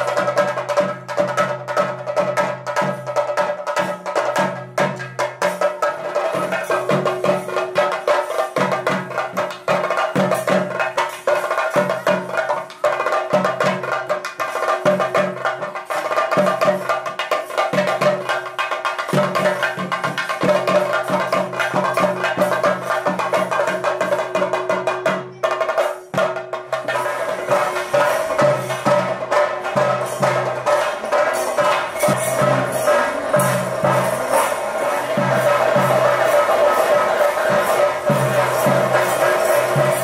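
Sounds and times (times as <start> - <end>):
rapid drumming: 0.0 - 40.0.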